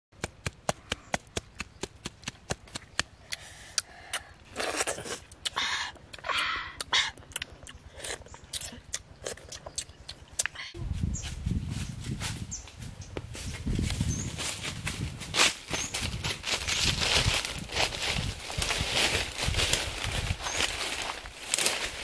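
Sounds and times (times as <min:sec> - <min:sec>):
slurping: 0:04.5 - 0:05.6.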